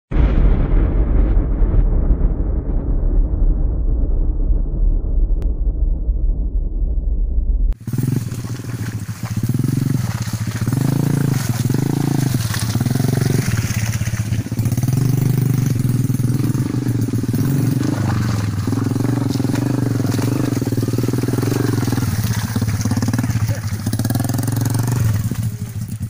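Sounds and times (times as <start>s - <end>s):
motorcycle engine at low revs: 7.8s - 26.0s.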